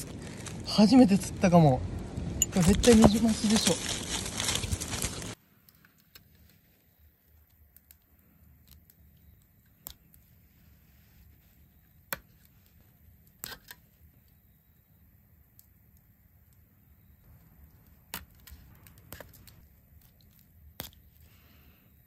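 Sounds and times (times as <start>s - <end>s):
low steady hum: 0.0s - 5.6s.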